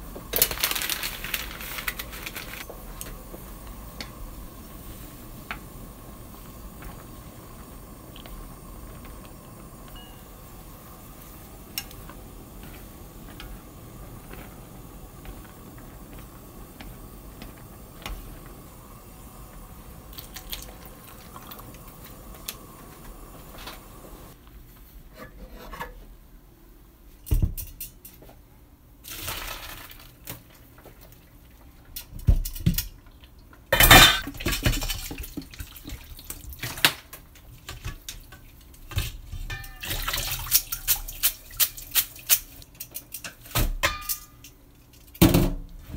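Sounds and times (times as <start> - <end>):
pot of noodles boiling: 0.0 - 24.4, 28.9 - 43.0
water pouring and splashing: 0.3 - 3.5, 20.0 - 22.6, 33.8 - 36.9, 37.5 - 42.6.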